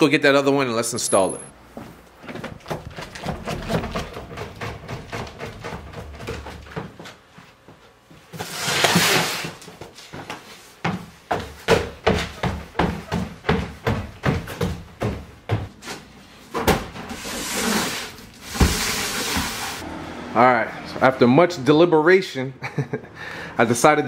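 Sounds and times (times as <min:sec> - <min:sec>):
footsteps on wooden stairs: 0:01.7 - 0:08.4, 0:09.7 - 0:17.0
rustling noise: 0:17.1 - 0:19.8.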